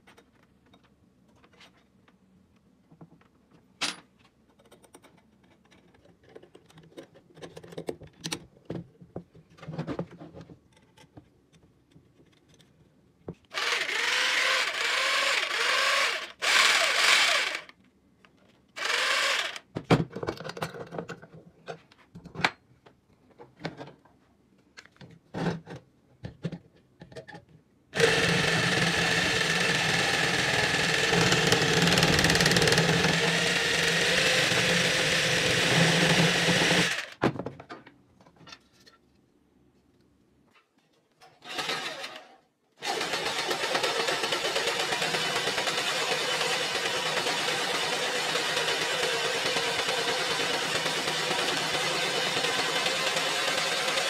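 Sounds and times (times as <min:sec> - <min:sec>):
small clicks and metal knocks: 0:00.0 - 0:09.7, 0:10.4 - 0:13.4
power tool motor running: 0:13.5 - 0:17.7, 0:18.8 - 0:19.6, 0:28.0 - 0:37.1, 0:42.8 - 0:54.0.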